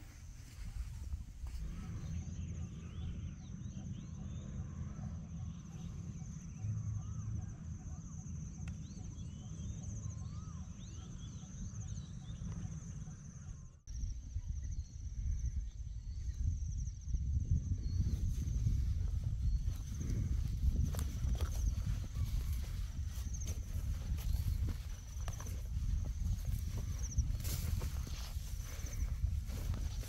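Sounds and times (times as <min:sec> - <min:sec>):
birds chirping: 0:00.1 - 0:13.8, 0:17.9 - 0:30.0
low rumble: 0:14.0 - 0:30.0.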